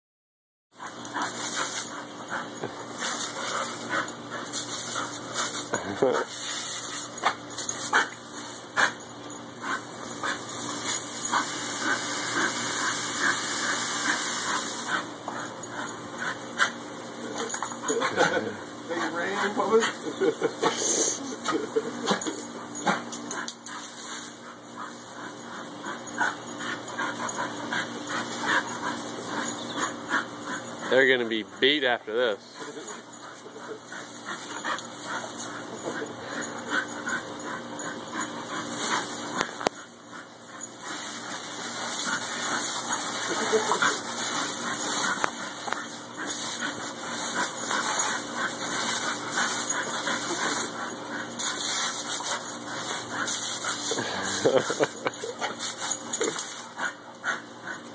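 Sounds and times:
garden hose hissing: 0.8s - 9.0s, 9.6s - 57.8s
dogs making excited noises: 0.8s - 57.9s
dogs jumping in spray: 1.1s - 2.0s, 2.9s - 9.0s, 9.6s - 15.1s, 40.7s - 56.8s
water hissing from hose nozzle: 10.5s - 15.0s.

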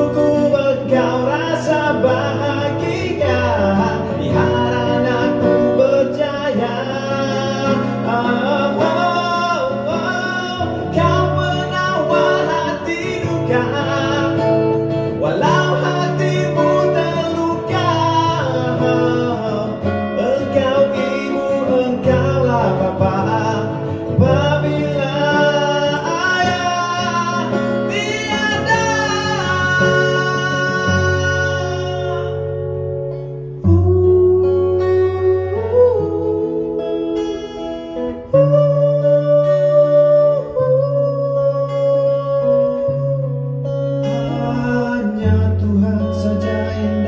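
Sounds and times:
acoustic guitar strumming: 0.0s - 47.0s
man singing: 0.0s - 47.0s.

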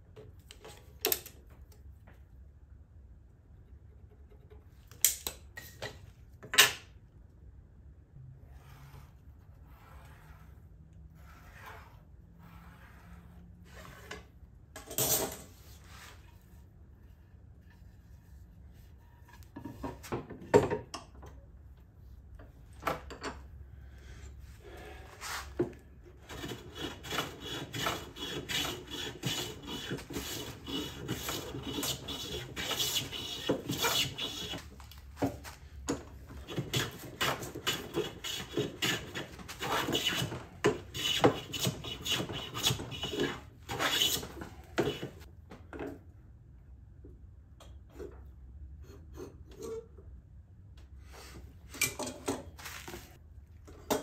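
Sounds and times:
hand plane shaving wood: 26.2s - 34.7s, 36.3s - 45.3s.

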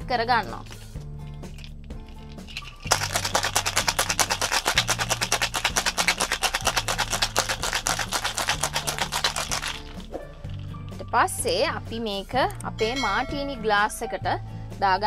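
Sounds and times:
ice rattling in a cocktail shaker: 1.4s - 11.4s.

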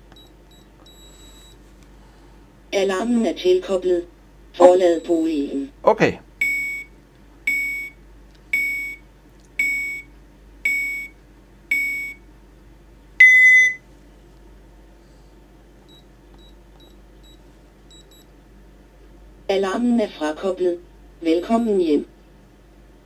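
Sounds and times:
faint keypad beeps: 0.2s - 1.6s, 13.2s - 13.8s
alarm system beeping: 4.6s - 5.3s, 8.6s - 9.0s, 9.6s - 10.1s, 11.7s - 12.2s, 13.2s - 13.8s
longer louder alarm beep: 7.5s - 8.0s, 8.6s - 9.0s, 9.6s - 10.1s, 10.7s - 11.1s, 11.7s - 12.2s, 13.2s - 13.8s.

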